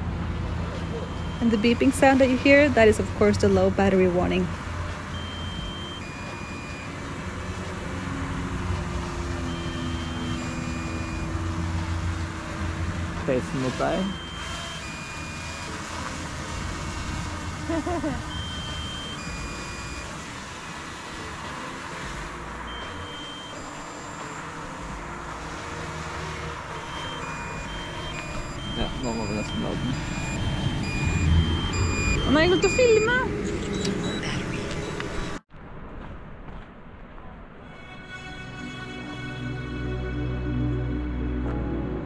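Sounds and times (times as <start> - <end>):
drone propellers buzzing: 0.0 - 35.4
two-note warning beeps: 0.8 - 4.5, 5.1 - 7.7, 9.3 - 12.0, 13.5 - 16.1, 18.2 - 20.2, 22.7 - 24.5, 26.8 - 35.4.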